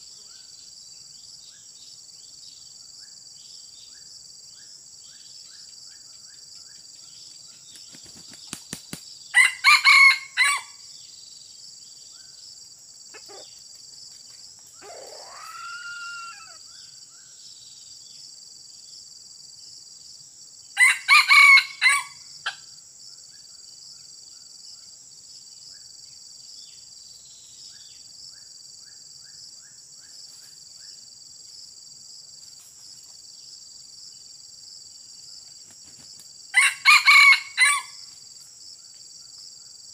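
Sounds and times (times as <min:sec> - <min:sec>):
insects humming: 0:00.0 - 0:39.9
rooster crowing: 0:09.4 - 0:10.8, 0:14.8 - 0:16.6, 0:20.8 - 0:22.2, 0:36.6 - 0:38.0.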